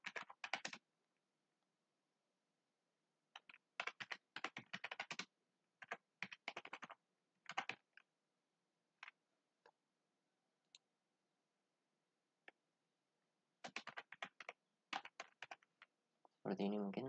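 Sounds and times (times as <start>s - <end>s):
keyboard typing: 0.0s - 0.8s, 3.3s - 8.0s, 13.6s - 15.9s.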